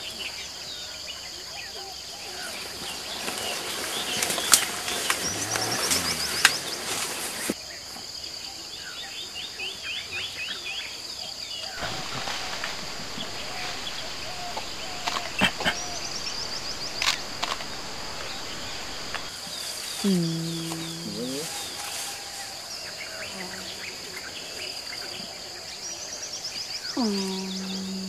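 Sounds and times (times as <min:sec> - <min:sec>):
birds chirping: 0:02.2 - 0:07.6, 0:11.6 - 0:21.9, 0:22.7 - 0:28.0
high insect drone: 0:02.6 - 0:07.6, 0:11.8 - 0:25.2
sharp snaps: 0:11.8 - 0:19.3.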